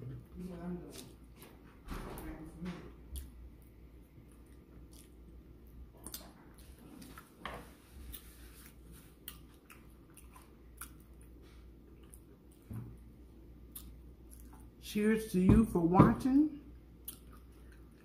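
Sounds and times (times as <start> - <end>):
person chewing food: 3.1 - 14.8, 16.9 - 18.0.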